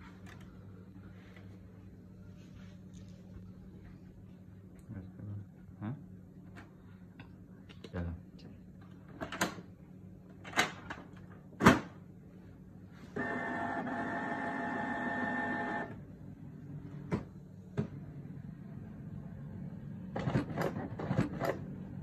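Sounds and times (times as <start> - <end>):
printer motors whirring: 13.2 - 16.0.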